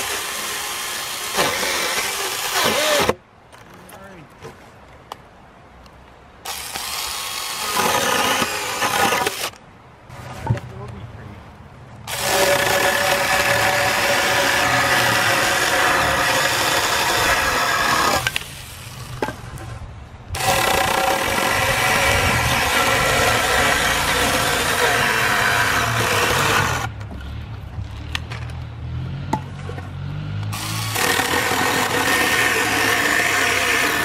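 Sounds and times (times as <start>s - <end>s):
battery saw cutting log: 0.0s - 3.2s, 6.4s - 9.6s, 12.1s - 19.2s, 20.3s - 26.9s, 30.5s - 34.0s.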